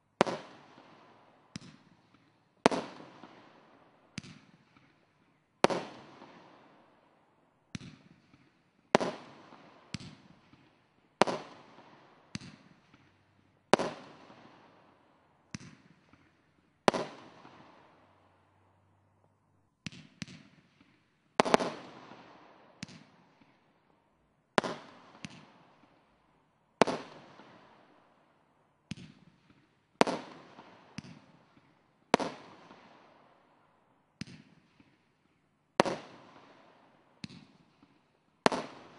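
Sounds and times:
fireworks bangs: 16.9s - 17.8s.

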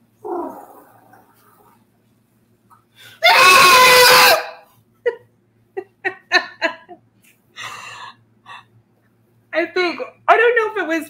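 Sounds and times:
man screeching: 3.2s - 4.6s
woman laughing: 5.0s - 7.0s.

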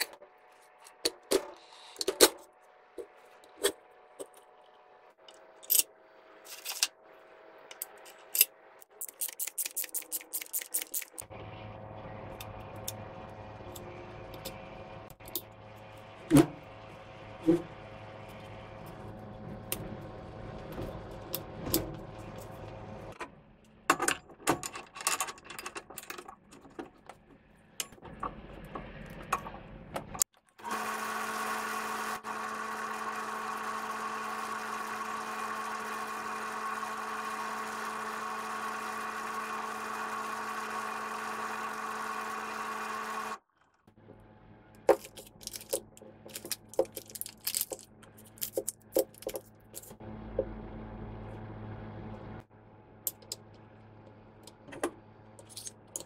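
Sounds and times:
small metal parts clicking: 7.7s - 11.2s, 44.9s - 50.0s, 55.4s - 56.0s
drill press running: 10.0s - 23.2s, 27.9s - 56.0s.

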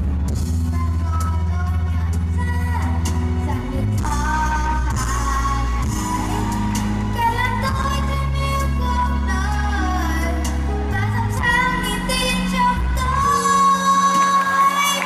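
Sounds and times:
deep sustained bass line: 0.0s - 13.4s
person singing over backing track: 0.7s - 15.0s.

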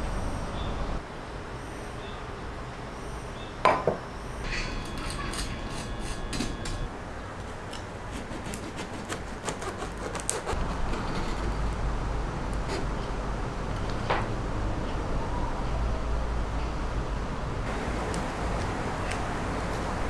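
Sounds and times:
bread knife sawing crust: 8.0s - 11.5s.

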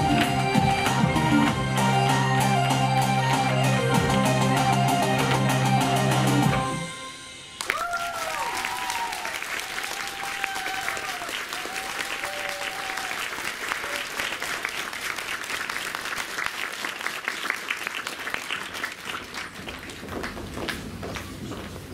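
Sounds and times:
audience applauding: 7.6s - 21.4s.

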